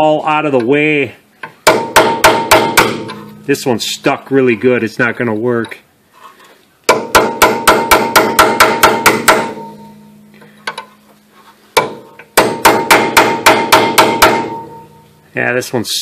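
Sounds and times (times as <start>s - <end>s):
hammer striking steel chisel: 1.6s - 3.6s, 6.9s - 10.9s, 11.8s - 15.0s.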